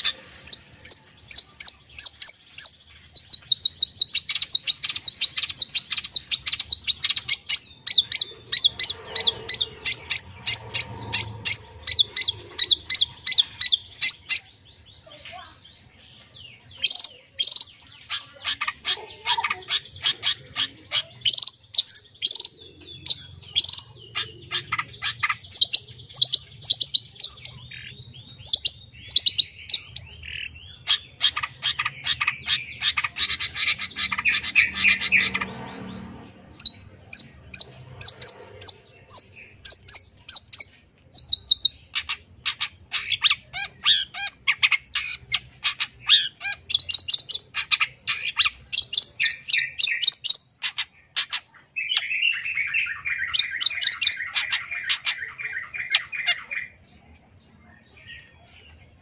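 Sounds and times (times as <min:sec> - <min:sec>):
shrike singing chirps and trills: 0:00.0 - 0:59.0
steady lower bird trill: 0:00.0 - 0:59.0
harsh rasping bird call: 0:16.8 - 0:26.5, 0:30.0 - 0:56.8.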